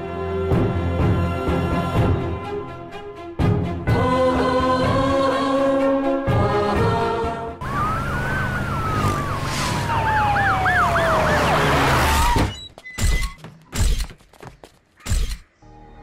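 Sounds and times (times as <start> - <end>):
siren winding down: 7.6 - 12.6
siren yelping: 7.6 - 12.6.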